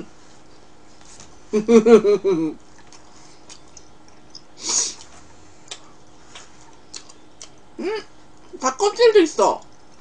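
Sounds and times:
person chewing: 2.6 - 8.5.

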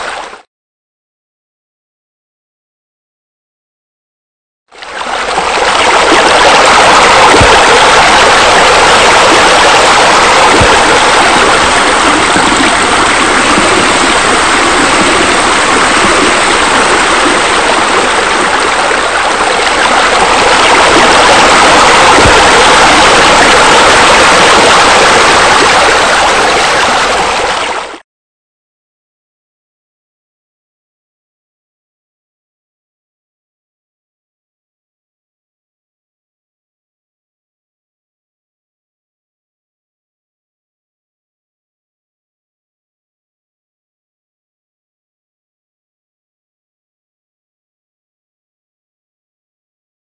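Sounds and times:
rushing falling water: 4.9 - 28.0.

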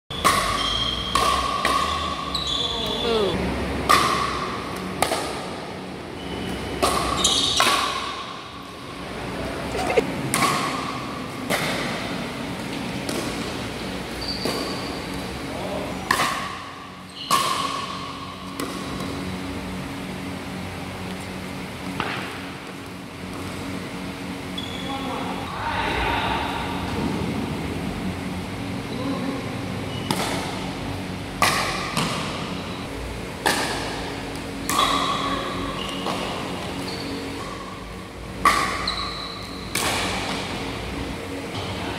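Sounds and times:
steady low hum: 0.1 - 41.9
paddles striking pickleball: 0.2 - 2.0, 31.4 - 32.4.

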